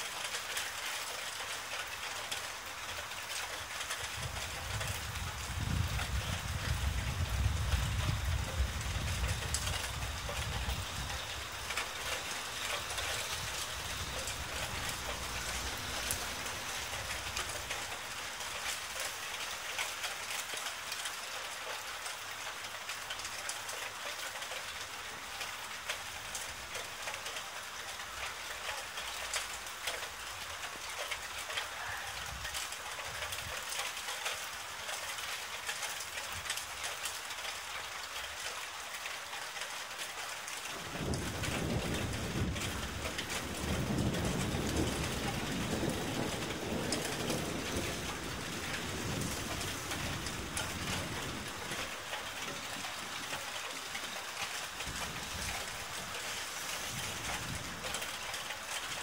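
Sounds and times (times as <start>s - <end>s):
steady rain: 0.0s - 59.0s
low thunder rumble: 4.1s - 18.0s, 40.8s - 53.4s.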